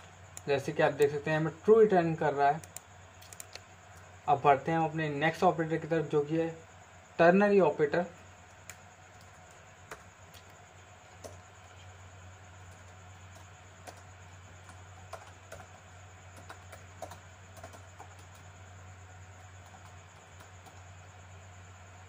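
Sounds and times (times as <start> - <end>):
steady low hum: 0.0 - 22.0
keyboard key clicks: 2.6 - 3.6.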